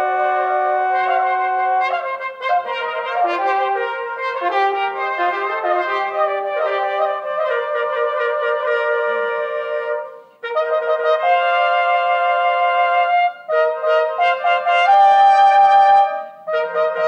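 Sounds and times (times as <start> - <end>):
brass band playing chords: 0.0 - 11.7
cornet melody: 0.0 - 17.0.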